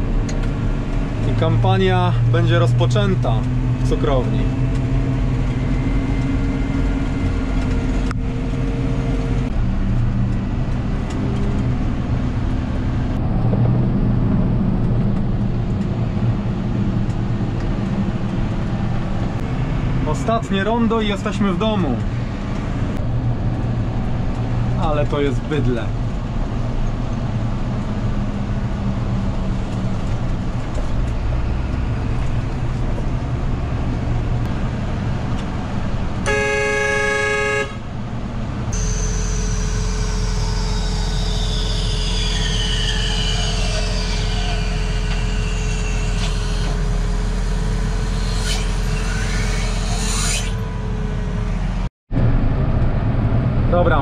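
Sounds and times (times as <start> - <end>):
tractor engine running: 0.0 - 41.6
high constant whine: 0.0 - 54.0
vehicle horn: 36.2 - 37.9, 38.7 - 41.2.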